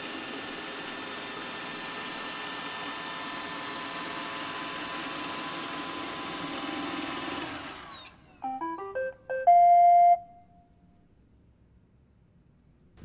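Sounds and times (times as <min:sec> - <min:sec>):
rising electronic beeps tune: 0:08.4 - 0:10.6.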